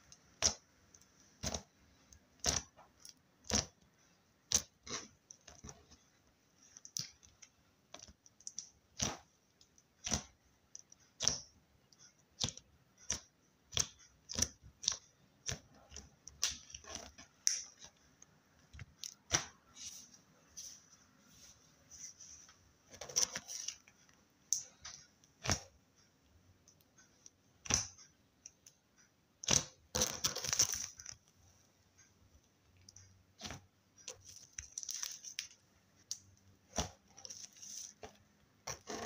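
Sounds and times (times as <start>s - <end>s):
slime popping and clicking: 27.6s - 28.0s.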